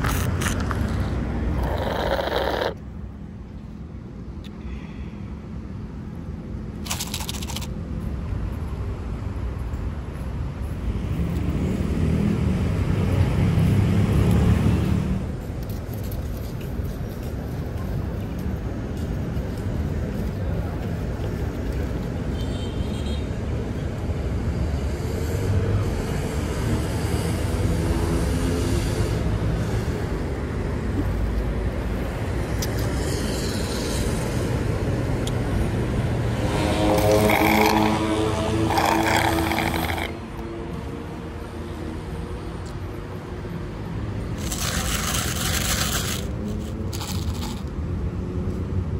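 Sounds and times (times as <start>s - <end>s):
steady traffic hum: 0.0s - 48.9s
passing vehicle rumble: 24.5s - 48.9s.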